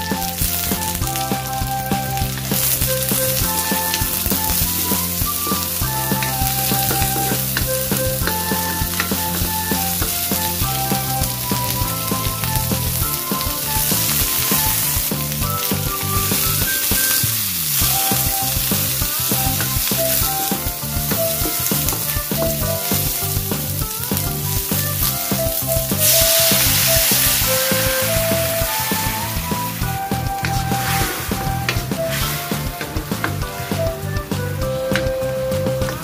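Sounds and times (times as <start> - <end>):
vegetables sizzling in a wok: 0.0 - 33.9
background music: 0.0 - 36.0
wooden spatula scraping a wok: 25.5 - 33.8.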